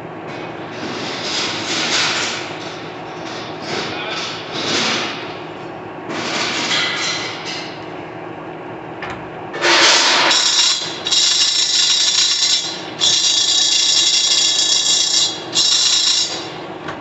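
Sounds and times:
lathe running with hum: 9.6s - 17.0s.

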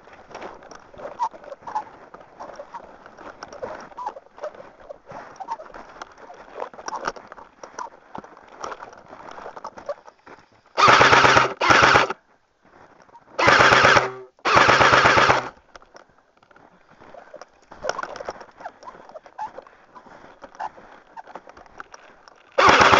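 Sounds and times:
airsoft gun full-auto bursts: 10.8s - 12.2s, 13.4s - 15.5s, 22.6s - 22.9s.

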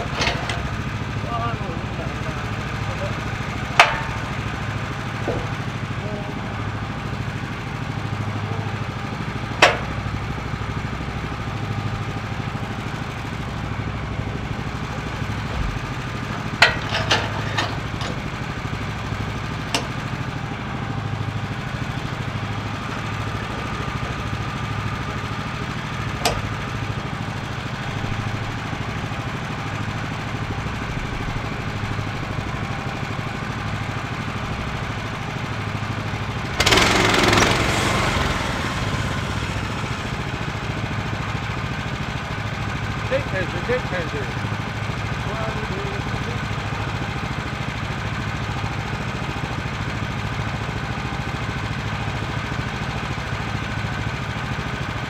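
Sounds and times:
small gas engine idling: 0.0s - 55.0s
knocks from handling a log: 5.2s - 5.6s.

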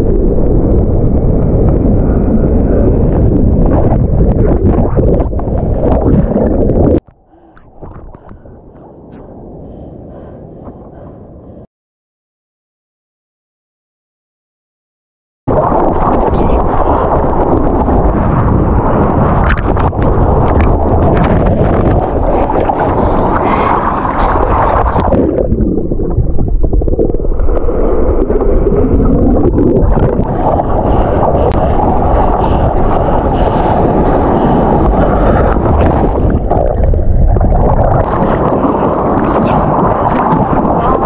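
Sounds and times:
wind buffeting microphone: 0.0s - 11.7s, 15.5s - 41.0s
water rushing and splashing: 15.5s - 41.0s.

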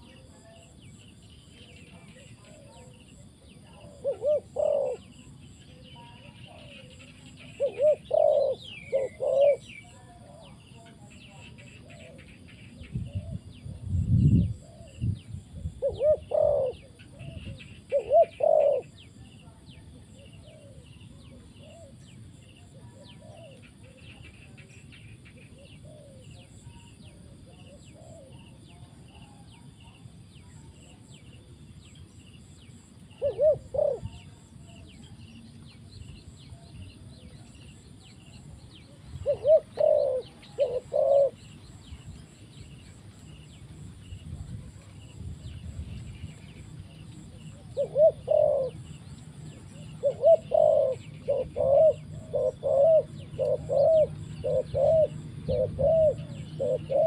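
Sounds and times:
dove cooing: 1.6s - 13.9s, 14.6s - 15.0s, 15.6s - 19.2s, 20.0s - 24.8s, 25.4s - 30.0s, 32.4s - 35.1s, 36.6s - 41.6s, 46.6s - 57.0s.

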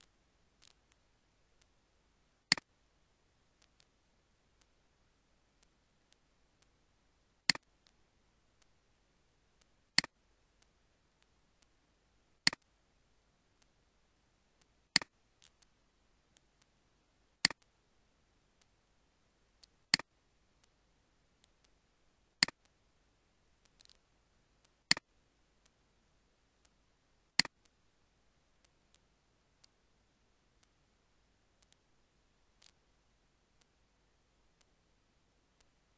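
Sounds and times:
faint ticks: 0.0s - 1.0s, 3.6s - 4.0s, 4.6s - 4.8s, 7.4s - 8.8s, 14.6s - 16.8s, 17.4s - 17.8s, 22.4s - 22.8s, 23.6s - 25.8s, 26.6s - 26.8s, 27.4s - 27.8s, 28.6s - 29.8s, 30.5s - 30.8s, 31.6s - 32.9s, 33.5s - 33.9s, 35.5s - 35.9s
sharp double clicks: 27.4s - 27.6s.

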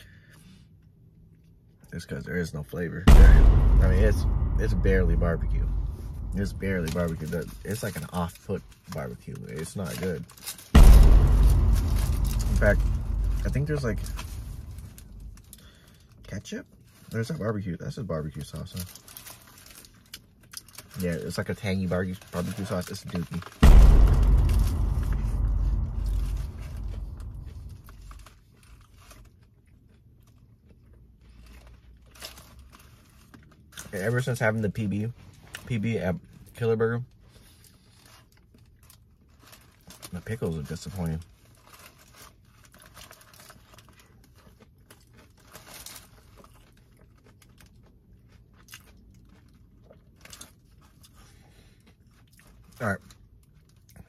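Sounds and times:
chewing crispy sandwich: 28.5s - 54.0s.

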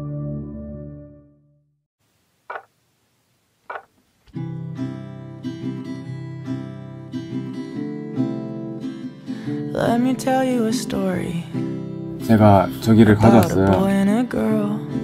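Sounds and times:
acoustic guitar chords: 3.7s - 15.0s.

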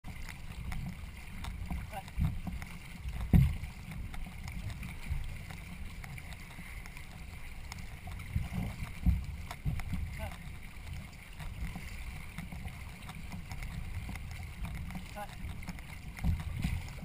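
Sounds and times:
dull knocks: 3.2s - 3.7s.

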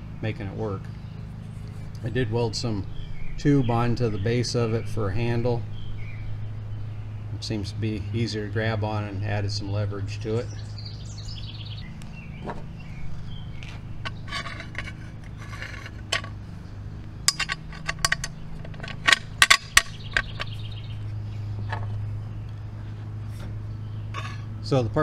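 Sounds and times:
steady low hum: 0.0s - 25.0s
metal parts clinking on wood: 14.0s - 16.5s, 17.2s - 20.6s.

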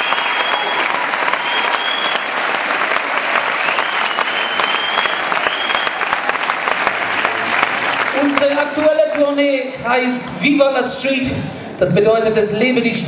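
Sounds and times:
audience applause: 0.0s - 9.4s.

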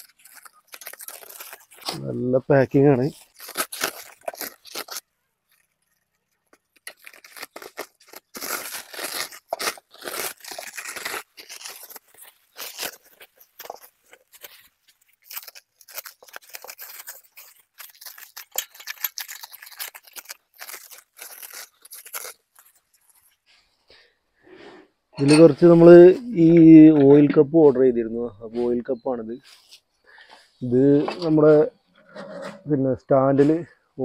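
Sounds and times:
plastic wrap crinkling and tearing: 0.0s - 23.6s.

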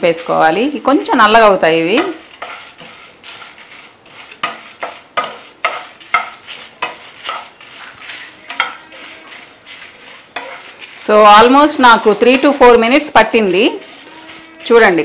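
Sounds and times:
dry spices rattling: 0.0s - 15.0s
wooden spatula scraping pan: 0.0s - 15.0s.

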